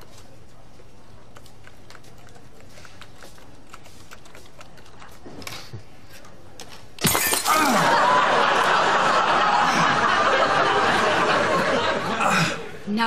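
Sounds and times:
studio audience laughter: 7.8 - 12.8.

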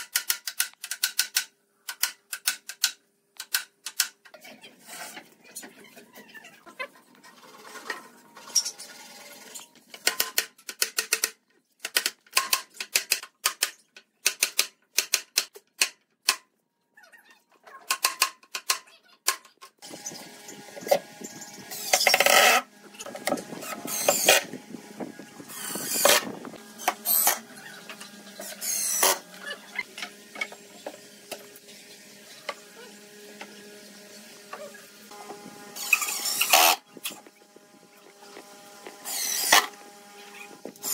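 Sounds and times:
impact driver driving screws: 23.2 - 24.5, 25.5 - 27.4, 28.4 - 29.2, 35.8 - 37.2, 39.0 - 39.8.

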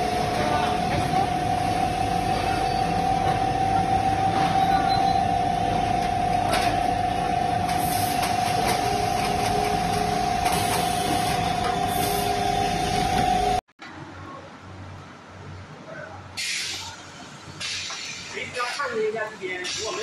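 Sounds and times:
machinery rushing noise: 0.0 - 13.6
machinery whine: 0.0 - 13.6.

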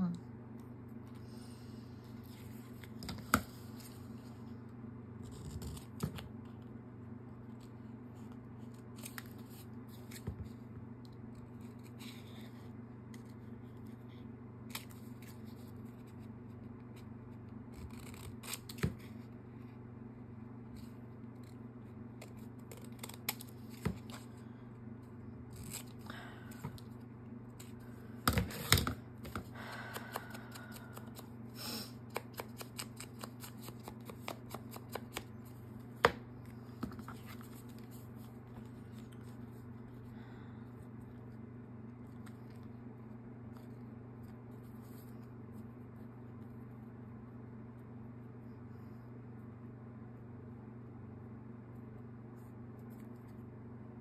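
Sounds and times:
scissors snipping paper: 17.7 - 19.1, 22.2 - 24.3, 32.0 - 35.3.

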